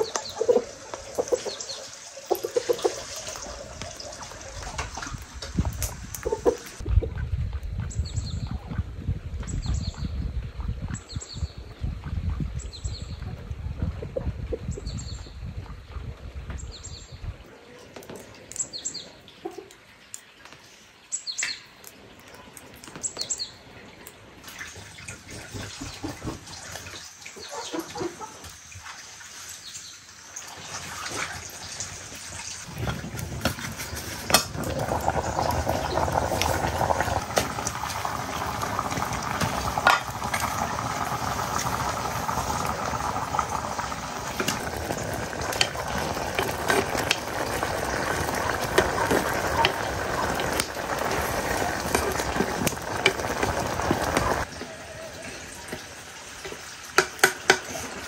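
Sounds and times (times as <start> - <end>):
rice boiling with bubbling hiss: 0.0 - 6.8, 24.1 - 58.0.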